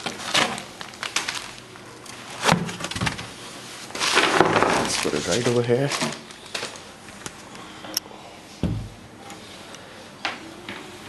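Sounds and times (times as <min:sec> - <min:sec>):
dull thump: 0:08.6 - 0:09.0.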